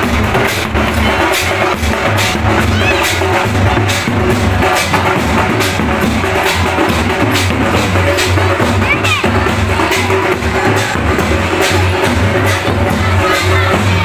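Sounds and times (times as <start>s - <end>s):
loud music with heavy bass: 0.0s - 14.0s.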